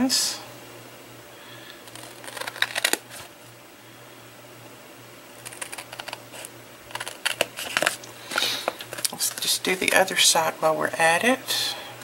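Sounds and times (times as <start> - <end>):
scissors snipping paper: 1.9 - 3.0, 5.4 - 8.0.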